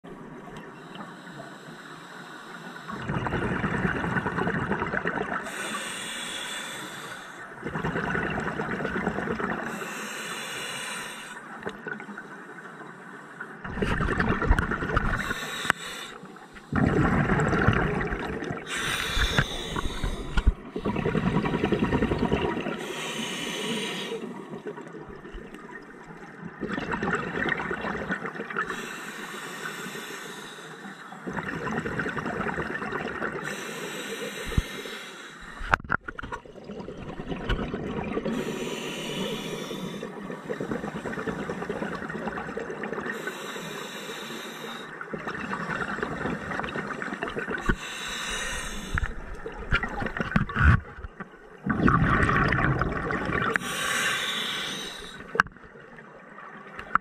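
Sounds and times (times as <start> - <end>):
bubbling of exhaled air: 2.9 - 9.9, 13.6 - 15.9, 16.6 - 25.8, 26.4 - 28.9, 31.2 - 33.7, 35.4 - 43.4, 45.0 - 55.8
regulator hiss on inhalation: 5.4 - 7.4, 9.7 - 11.6, 15.2 - 16.7, 18.7 - 20.6, 22.8 - 24.3, 28.7 - 31.2, 33.4 - 35.6, 38.3 - 41.0, 43.1 - 45.0, 47.6 - 49.2, 53.5 - 55.4.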